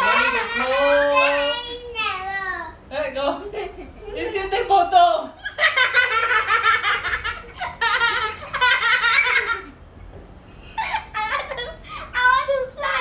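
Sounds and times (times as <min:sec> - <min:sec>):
young children laughing: 0:03.4 - 0:04.5, 0:05.4 - 0:09.8, 0:10.6 - 0:12.2.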